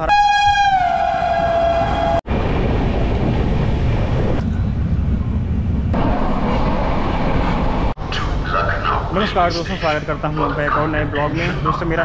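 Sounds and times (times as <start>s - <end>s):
train horn: 0.0s - 2.2s
passing train rumble: 0.0s - 12.0s.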